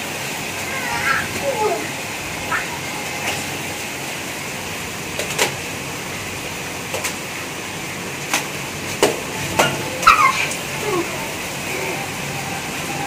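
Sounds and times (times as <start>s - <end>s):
rain falling: 0.0s - 13.0s
sharp taps and splashes: 5.1s - 5.7s, 6.8s - 7.4s, 8.2s - 10.6s.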